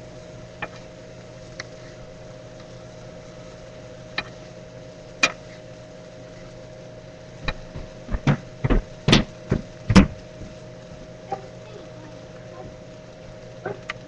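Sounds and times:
steady hum: 0.0s - 14.0s
sharp knocks and clicks: 7.4s - 10.5s.

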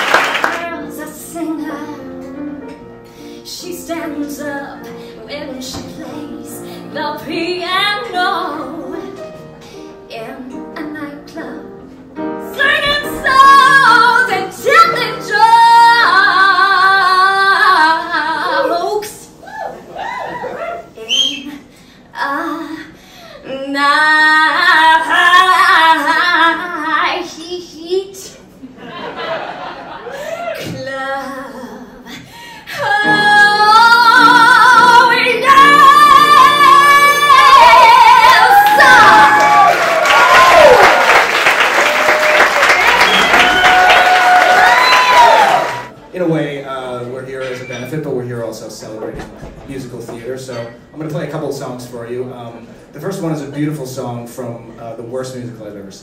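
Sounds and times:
woman singing into a microphone: 0.5s - 2.3s, 3.4s - 9.2s, 12.4s - 19.4s, 21.4s - 28.0s, 30.6s - 39.6s.

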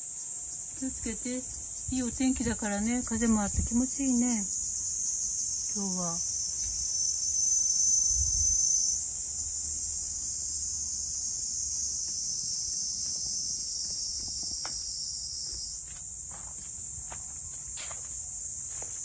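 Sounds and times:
insect chorus hiss: 0.0s - 19.0s.

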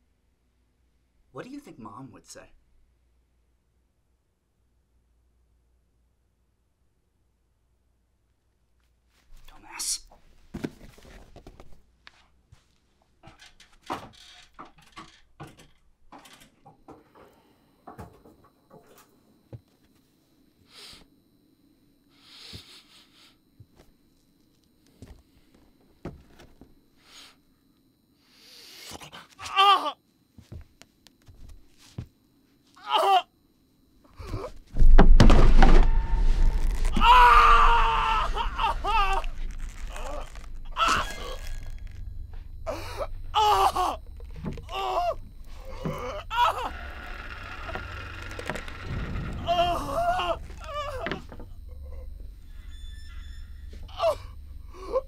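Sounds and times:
person crying in pain: 32.8s - 33.3s, 36.6s - 41.5s, 42.6s - 46.7s, 49.4s - 51.2s, 53.9s - 55.0s
low rumble: 34.8s - 55.0s
person groaning: 36.9s - 41.4s, 42.6s - 44.0s, 49.4s - 51.2s.

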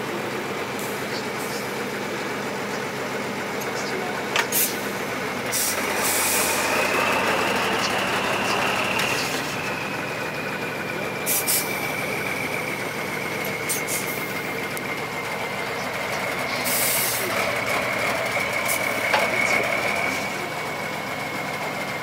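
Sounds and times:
diesel truck engine under load: 0.0s - 22.0s.

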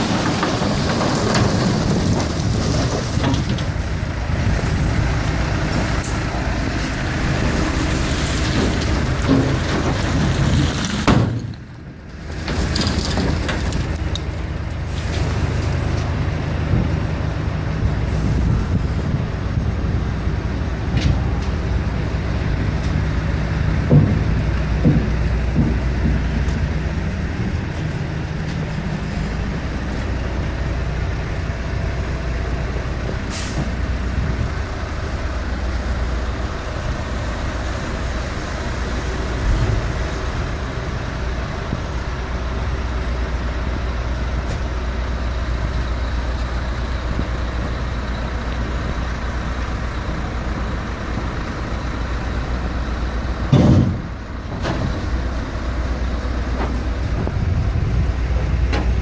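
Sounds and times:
diesel engine running: 0.0s - 59.0s
thud: 8.5s - 11.6s, 23.9s - 26.4s, 53.5s - 55.0s.

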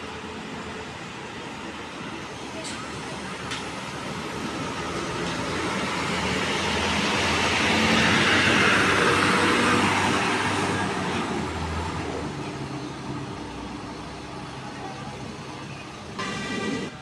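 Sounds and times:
bus driving past: 0.0s - 17.0s.

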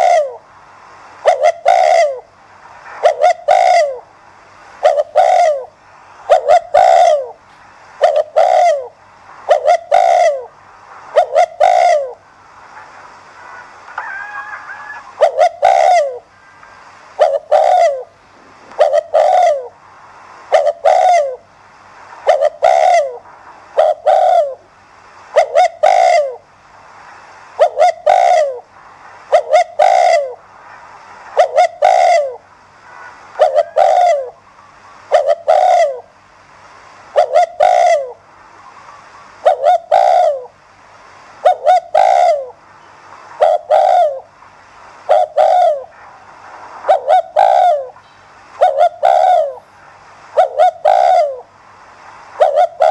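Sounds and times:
dove cooing: 0.0s - 0.4s, 1.2s - 2.3s, 3.0s - 4.1s, 4.8s - 7.4s, 8.0s - 10.5s, 11.1s - 12.2s, 14.0s - 16.3s, 17.2s - 19.8s, 20.5s - 21.4s, 22.2s - 23.2s, 23.8s - 24.7s, 25.3s - 26.4s, 27.6s - 28.6s, 29.3s - 30.4s, 31.4s - 32.4s, 33.4s - 34.4s, 35.1s - 36.1s, 37.1s - 38.2s, 39.4s - 40.6s, 41.4s - 42.6s, 43.4s - 44.3s, 45.0s - 46.0s, 46.9s - 48.0s, 48.6s - 49.6s, 50.3s - 51.5s, 52.4s - 52.9s.

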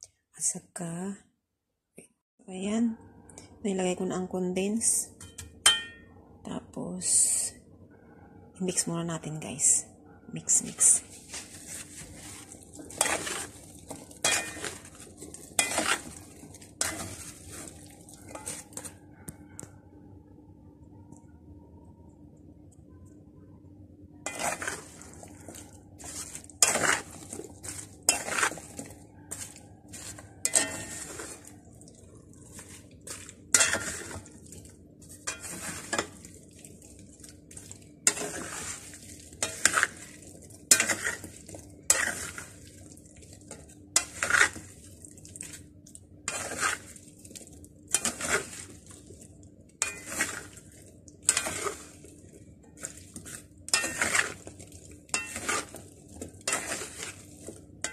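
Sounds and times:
spatula scraping a pan: 10.8s - 18.9s, 24.3s - 45.6s, 46.2s - 49.2s, 49.8s - 57.9s.

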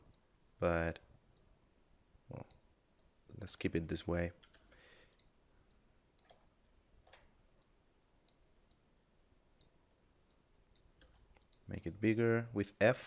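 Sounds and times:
computer mouse clicks: 4.4s - 8.9s, 9.6s - 11.7s.

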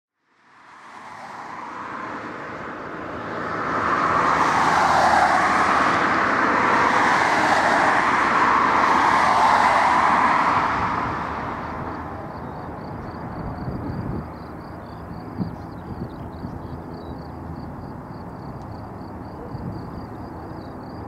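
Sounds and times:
propeller aircraft engines running: 1.2s - 21.0s.

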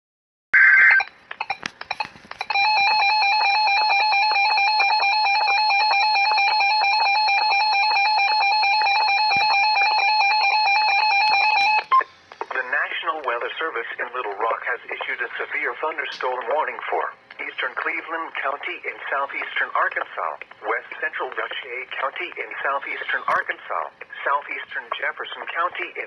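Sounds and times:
clicks: 1.0s - 2.6s.

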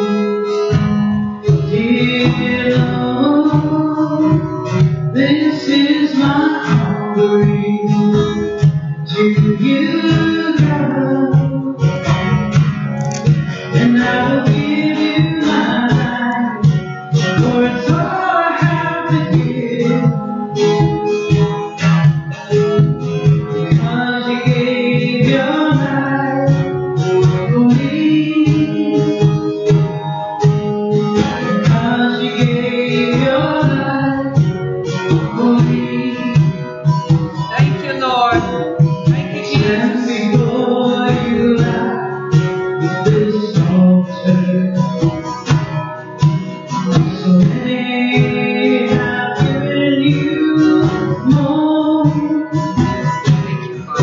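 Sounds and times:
acoustic guitar: 0.0s - 54.0s
conga drums: 0.7s - 54.0s
person singing: 1.6s - 12.0s, 13.0s - 21.4s, 23.4s - 29.7s, 31.4s - 36.8s, 37.4s - 45.1s, 46.7s - 52.9s.

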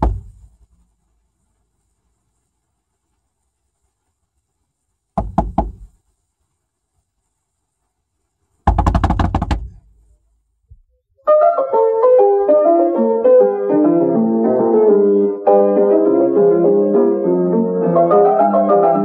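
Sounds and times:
knocks on car window: 0.0s - 0.4s, 5.2s - 5.9s, 8.7s - 9.8s
piano music: 11.2s - 19.0s.

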